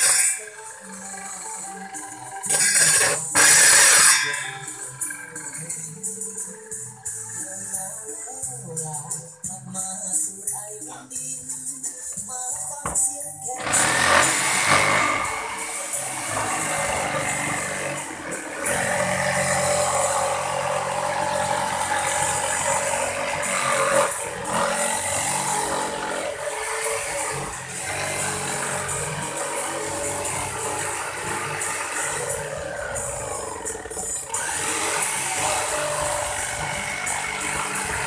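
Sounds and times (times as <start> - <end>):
electric jigsaw cutting: 2.5 - 4.7, 13.6 - 38.0.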